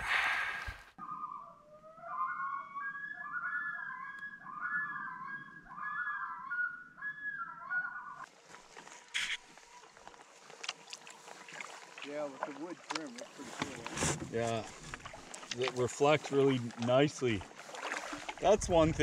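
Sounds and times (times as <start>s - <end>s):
animal whistle-like call: 0.0s - 8.3s.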